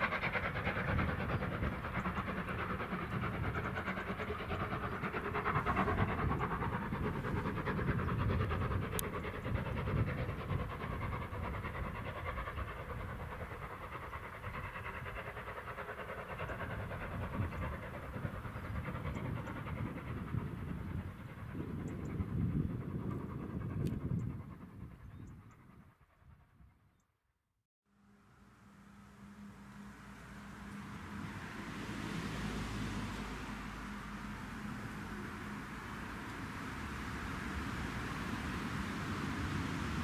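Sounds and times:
steam locomotive working hard: 0:00.0 - 0:25.4
wind rumbling on microphone: 0:00.0 - 0:26.9.

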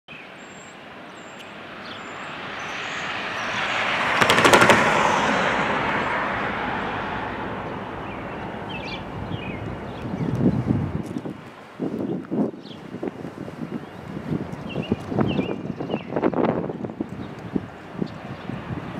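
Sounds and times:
vehicle tyre noise passing: 0:00.4 - 0:18.9
sharp rattling clicks: 0:04.2 - 0:04.9.

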